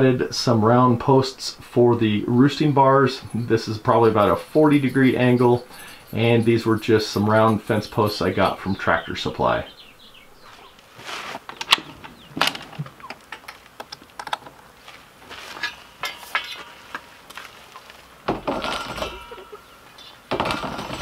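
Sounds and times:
tool scraping plastic roofing: 10.9s - 12.9s, 20.3s - 21.0s.

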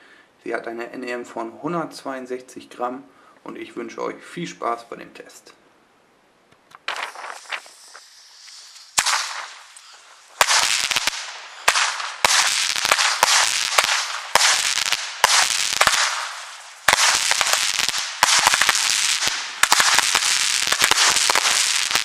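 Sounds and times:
firework shots: 6.7s - 22.0s
hiss of burning firework: 6.8s - 22.0s.

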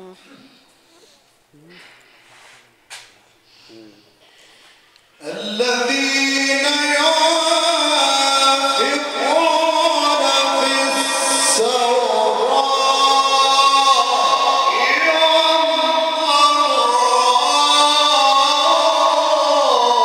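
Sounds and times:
man reciting melodically: 5.1s - 20.0s.

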